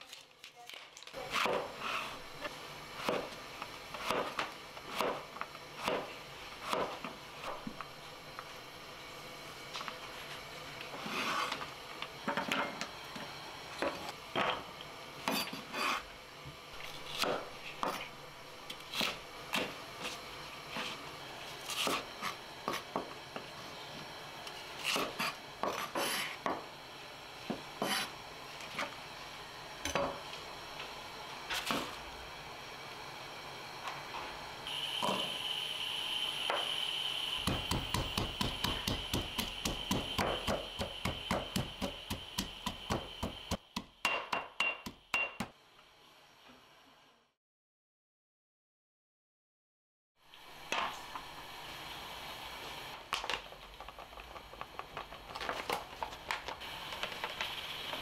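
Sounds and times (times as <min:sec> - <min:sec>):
knife chopping on wooden board: 0:01.3 - 0:01.8, 0:04.0 - 0:07.8, 0:17.1 - 0:18.1, 0:21.7 - 0:22.8, 0:37.4 - 0:45.5
pestle pounding in stone mortar: 0:37.4 - 0:45.5.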